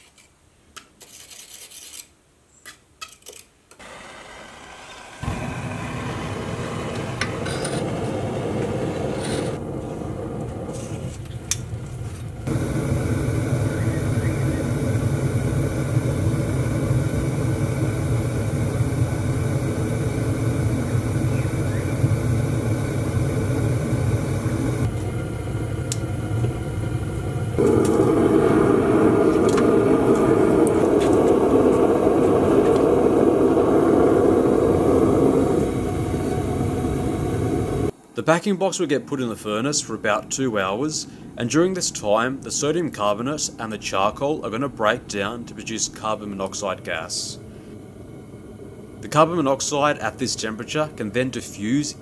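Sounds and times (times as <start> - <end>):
furnace burner rushing: 3.8 - 38.0, 45.7 - 52.0.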